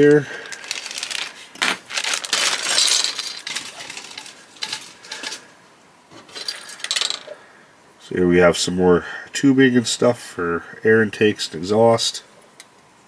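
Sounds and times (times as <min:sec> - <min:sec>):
plastic bag crinkling: 0:00.0 - 0:05.5
plastic parts clicking and clattering: 0:00.0 - 0:05.5, 0:06.1 - 0:07.4.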